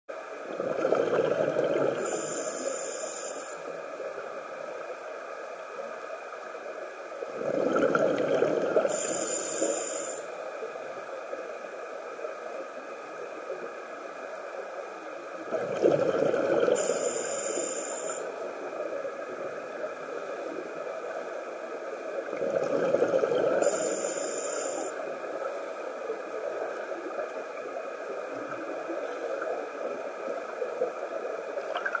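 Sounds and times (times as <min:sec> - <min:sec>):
underwater regulator bubbles: 0:00.5 - 0:02.4, 0:07.3 - 0:10.1, 0:15.5 - 0:18.2, 0:22.2 - 0:24.9, 0:31.6 - 0:32.0.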